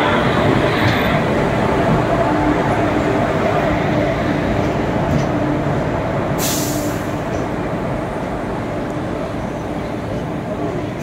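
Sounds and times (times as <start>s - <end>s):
train coaches rumbling: 0.0s - 11.0s
air hiss: 6.4s - 7.1s.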